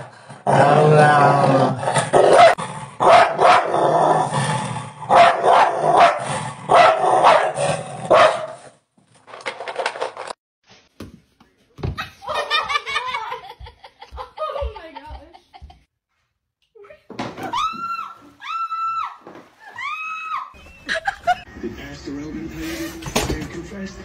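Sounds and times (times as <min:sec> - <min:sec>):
dog barking and snarling: 0:00.0 - 0:08.8.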